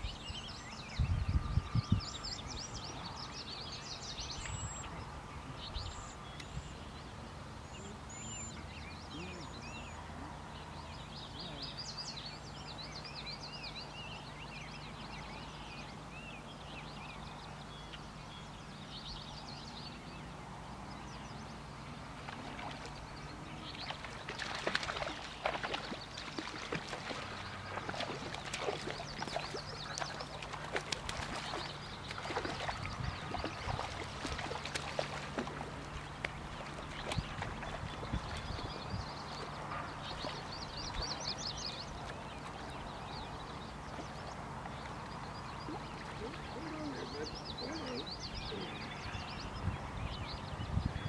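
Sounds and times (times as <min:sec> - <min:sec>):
birds singing: 0:00.0 - 0:51.0
person wading through water: 0:22.0 - 0:48.8.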